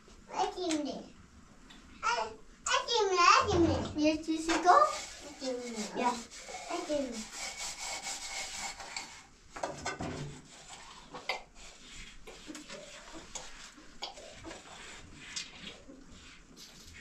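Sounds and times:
dishes scrubbed in metal basin: 3.4s - 17.0s.

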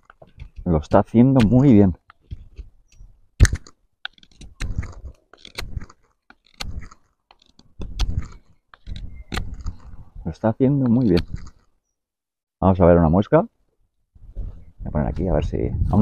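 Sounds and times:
sharp click: 1.4s - 5.9s
knife shaving wood: 3.4s - 10.0s.

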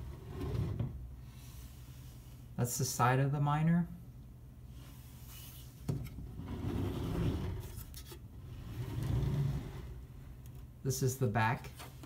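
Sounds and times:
metal case scraping on table: 6.3s - 7.8s, 8.6s - 10.0s.

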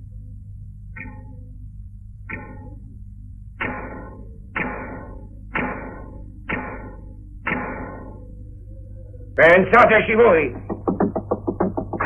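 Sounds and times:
steady low hum: 0.0s - 12.0s
struck percussion hits: 2.3s - 2.8s, 3.6s - 8.3s, 10.5s - 12.0s.

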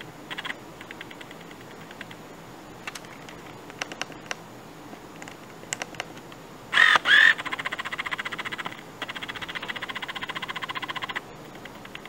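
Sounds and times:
lens autofocus motor buzzing: 6.8s - 7.6s.

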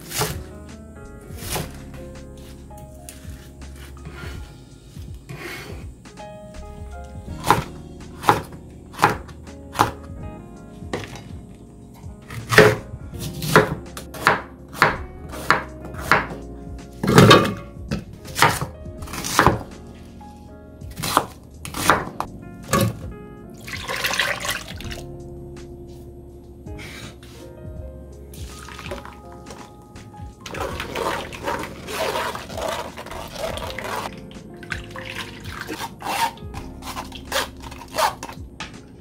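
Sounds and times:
knife chopping on cutting board: 0.1s - 0.4s, 7.4s - 10.0s, 12.3s - 16.4s, 17.0s - 19.7s, 21.0s - 22.2s.

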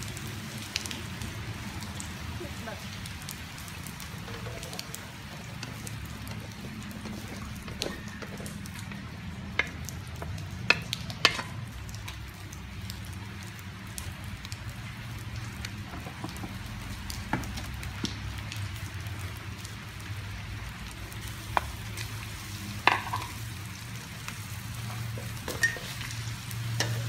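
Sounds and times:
food sizzling in a wok: 0.0s - 27.0s
wooden spatula stirring: 4.0s - 11.6s.

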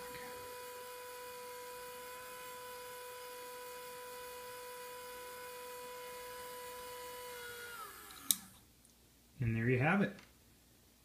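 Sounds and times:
electric motor humming with whine: 0.0s - 8.6s.

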